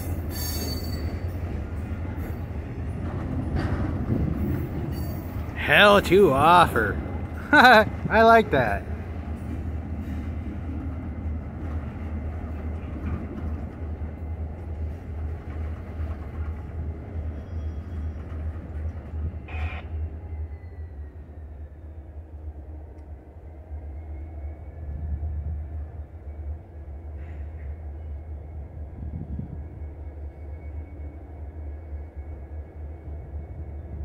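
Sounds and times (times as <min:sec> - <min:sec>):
freight train rumbling: 0:00.0 - 0:34.0
wheel squeals: 0:17.3 - 0:18.5.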